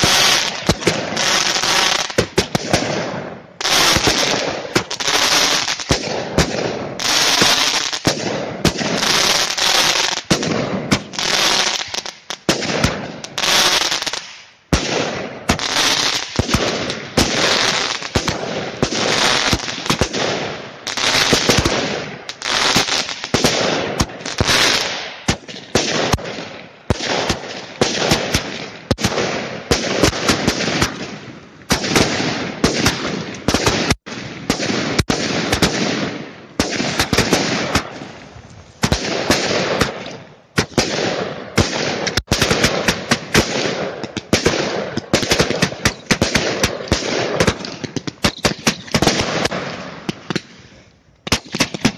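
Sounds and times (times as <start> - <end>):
firework shots launching: 0.0 - 50.6
hissing crackling firework bursts: 36.8 - 40.0.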